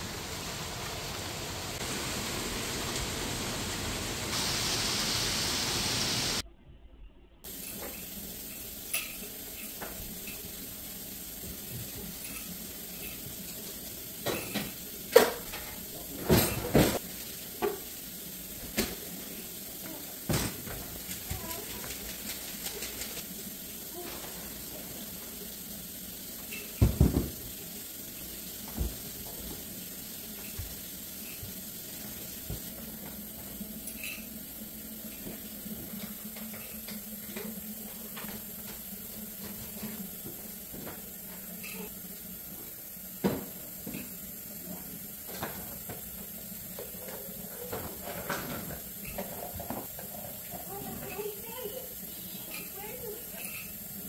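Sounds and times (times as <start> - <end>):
steady hiss: 0.0 - 6.4, 7.5 - 54.0
plastic toys clattering on floor: 20.3 - 23.3.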